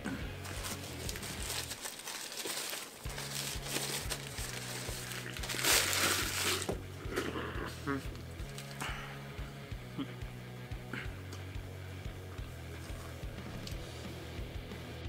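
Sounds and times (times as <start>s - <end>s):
paper wrapper crinkling: 0.4s - 7.3s, 8.1s - 8.8s
background music with a beat: 3.1s - 15.0s.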